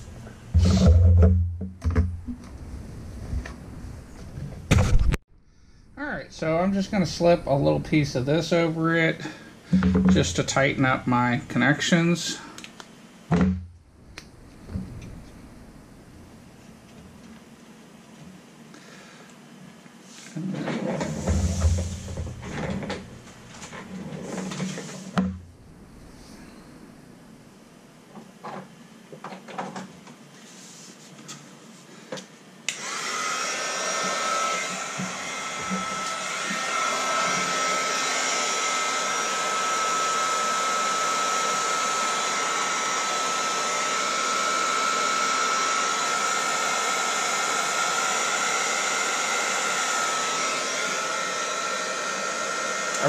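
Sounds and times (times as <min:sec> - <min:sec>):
heat gun blowing with high whine: 0:32.6 - 0:53.0.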